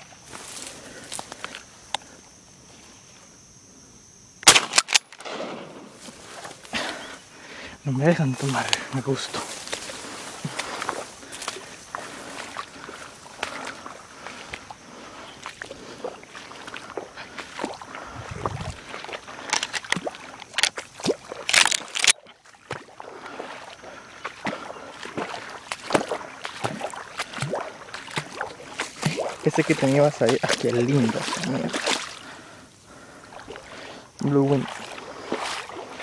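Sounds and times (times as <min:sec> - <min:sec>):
water sloshing and splashing: 0:08.4 - 0:36.0.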